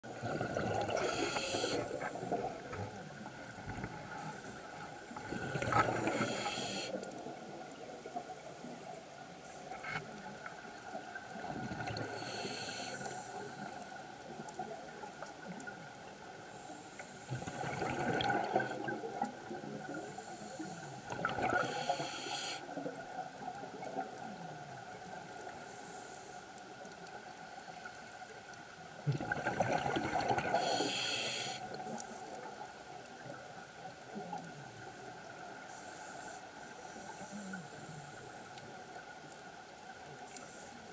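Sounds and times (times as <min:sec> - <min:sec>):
faint steady tone: 0:30.4 - 0:40.9.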